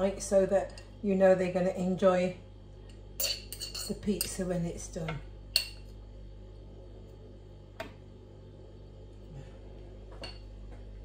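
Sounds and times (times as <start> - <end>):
steady low hum: 0.0 - 11.0
fork clinking against glass jar: 3.2 - 4.0.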